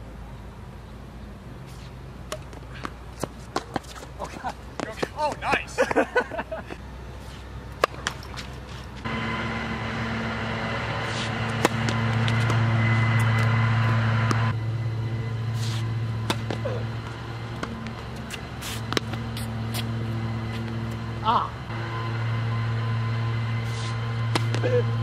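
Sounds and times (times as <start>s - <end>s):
engine drone: 0.0s - 25.0s
tennis balls struck by rackets: 2.2s - 5.8s, 7.7s - 9.1s, 10.0s - 14.5s, 15.6s - 21.2s, 23.7s - 24.9s.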